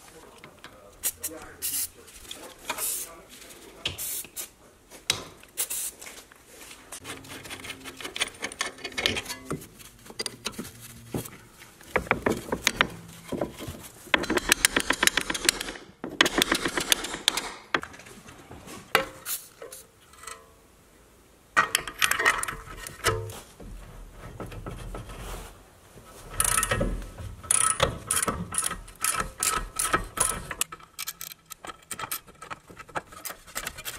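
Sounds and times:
wrench turning a nut: 26.3s - 26.8s, 27.4s - 33.9s.

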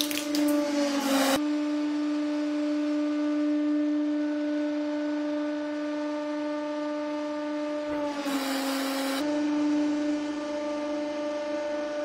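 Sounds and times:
hydraulic press motor humming: 7.8s - 11.2s.

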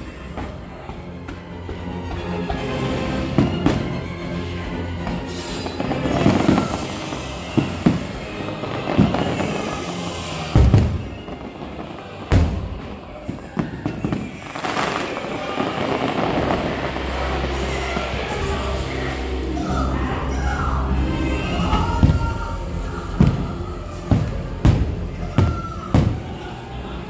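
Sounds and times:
orchestral music: 0.0s - 27.0s
fireworks bangs: 2.6s - 4.2s, 5.0s - 19.3s, 21.2s - 27.0s.

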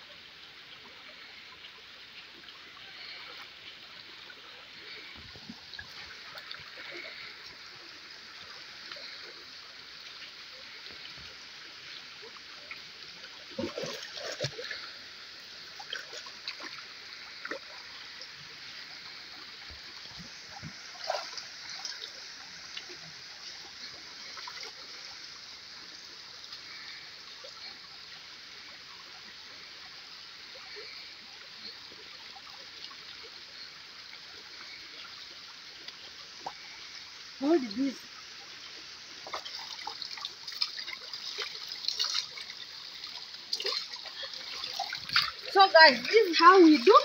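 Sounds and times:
river water running over stones: 0.0s - 47.0s
water splashing: 10.8s - 25.0s, 37.4s - 47.0s.

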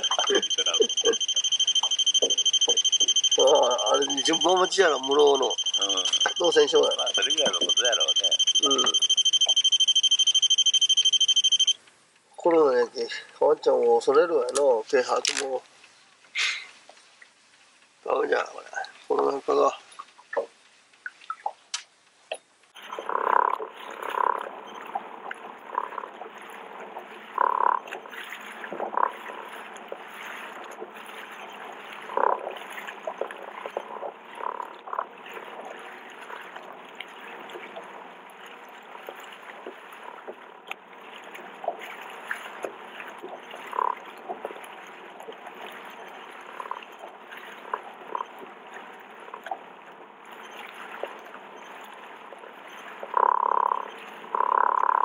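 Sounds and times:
water lapping against boat hull: 0.0s - 11.6s, 22.7s - 55.0s.

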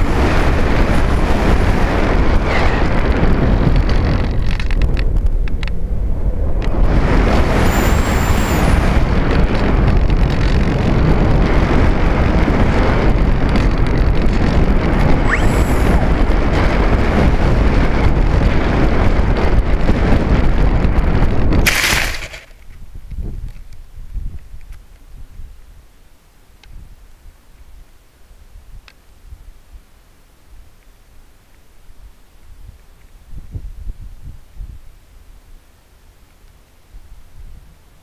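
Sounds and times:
wind rush and buffeting: 0.0s - 25.8s, 33.2s - 35.0s.

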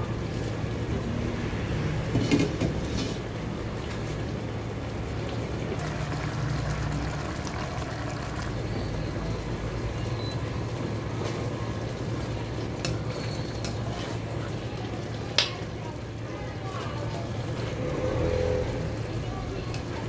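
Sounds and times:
stew bubbling: 5.3s - 15.3s.

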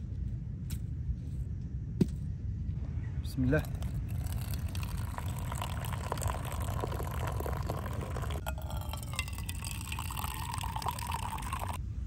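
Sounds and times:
tea pouring into glass: 3.6s - 11.8s.

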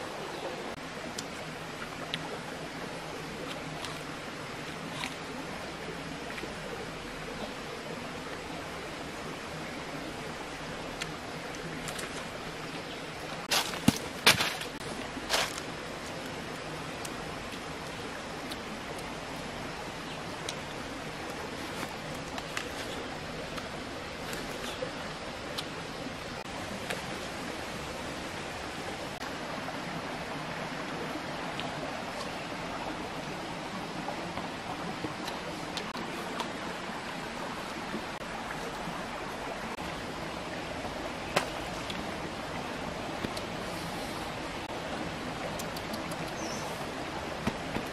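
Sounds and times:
flowing stream: 0.0s - 47.9s
steady background hiss: 0.0s - 47.9s
faint sharp clicks: 45.4s - 46.7s.

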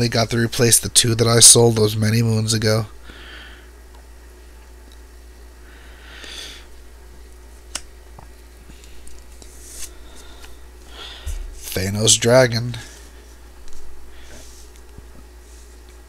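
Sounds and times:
low steady hum: 0.0s - 16.0s
cards swishing and rustling: 8.7s - 10.6s.

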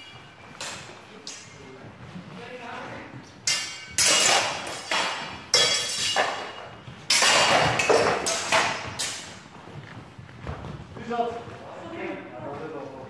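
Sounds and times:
swords clanging: 3.4s - 9.4s.

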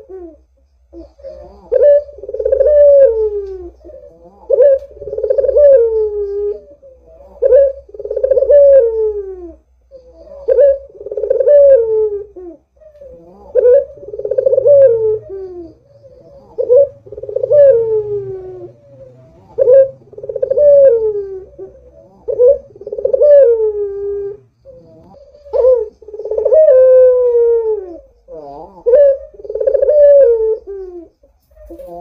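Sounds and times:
dove cooing: 0.0s - 32.0s.

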